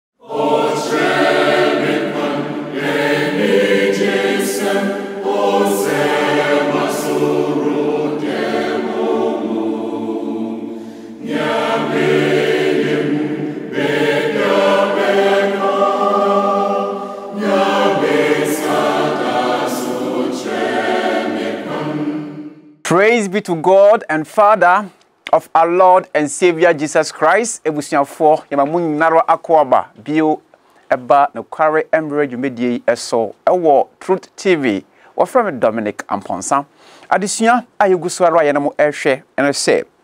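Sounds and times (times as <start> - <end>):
choir singing held chords: 0.2 - 22.9.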